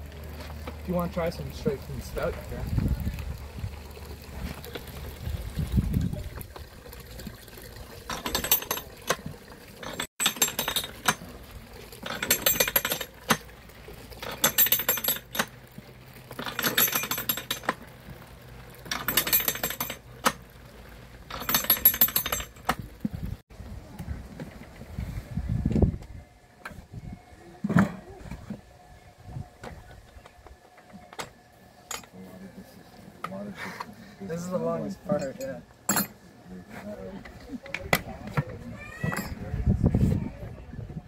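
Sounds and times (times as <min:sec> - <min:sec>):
cider trickling into bucket: 0:00.0 - 0:19.2.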